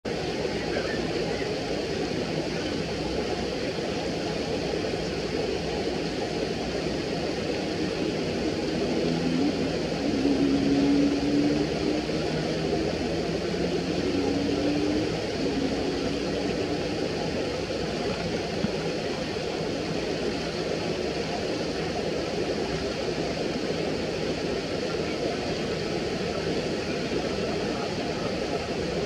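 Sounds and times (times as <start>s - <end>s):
distant engine drone: 0.1s - 29.0s
shallow river water rushing: 0.1s - 29.0s.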